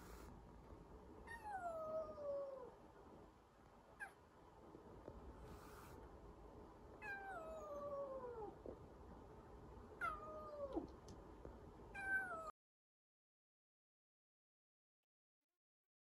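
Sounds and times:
kitten meowing: 10.0 - 10.9.

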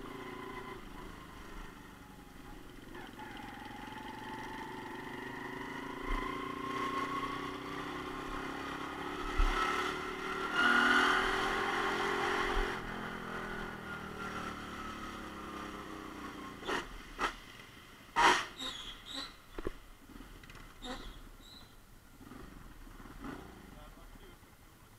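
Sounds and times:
motorcycle engine running: 0.0 - 10.4.

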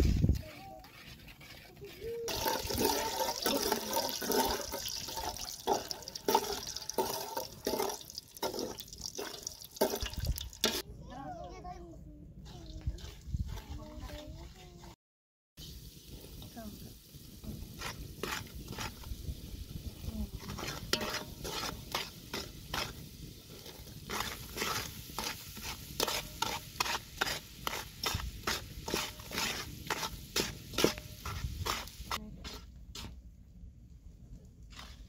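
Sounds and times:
metal ladle scraping pot: 0.0 - 10.8, 17.4 - 33.1.

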